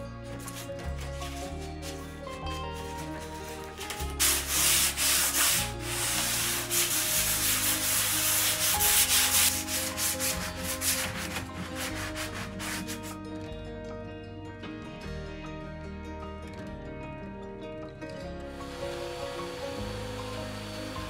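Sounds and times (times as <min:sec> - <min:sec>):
sanding sponge scratching: 0:00.3 - 0:13.2.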